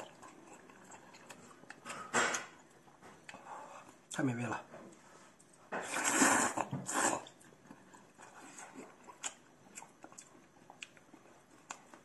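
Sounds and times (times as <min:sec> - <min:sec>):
quiet chewing: 0:00.0 - 0:04.2, 0:04.9 - 0:12.0
loud noodle slurping: 0:05.8 - 0:07.4.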